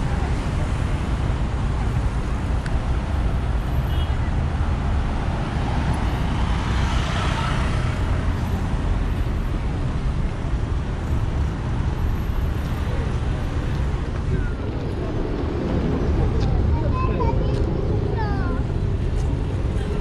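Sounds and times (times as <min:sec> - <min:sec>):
cars driving by: 0:00.0 - 0:20.0.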